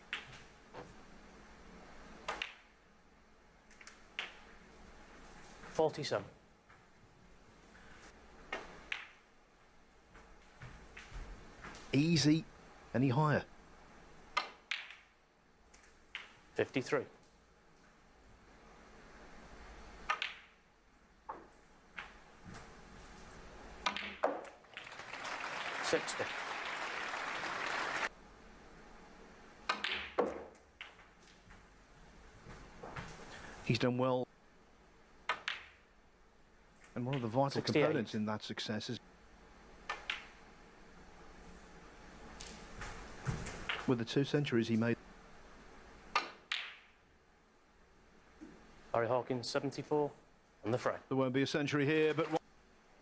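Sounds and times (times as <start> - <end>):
snooker balls clicking: 0.0 - 0.5, 2.2 - 2.7, 3.7 - 4.5, 8.5 - 9.3, 14.3 - 15.1, 16.1 - 16.4, 20.0 - 20.6, 23.8 - 25.1, 29.6 - 31.4, 35.2 - 35.8, 39.8 - 40.4, 43.6 - 43.9, 46.1 - 46.9
snooker balls colliding: 20.0 - 20.6, 23.8 - 24.8, 29.7 - 31.1, 35.3 - 35.8, 46.1 - 46.9.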